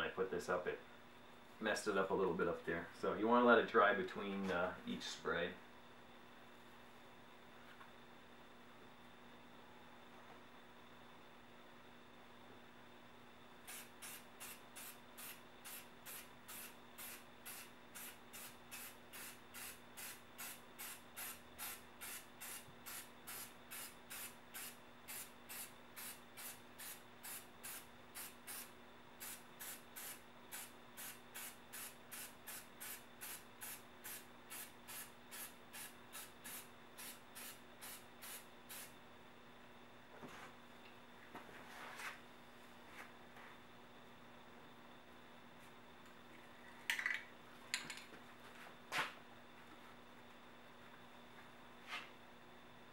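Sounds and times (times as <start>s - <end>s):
spray paint can bursts: 13.7s - 38.9s.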